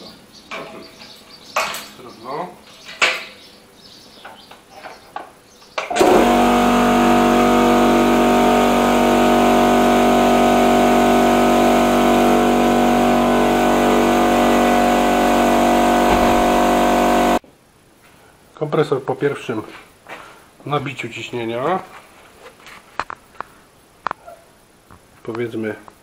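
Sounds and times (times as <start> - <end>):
air compressor running: 5.9 - 17.4.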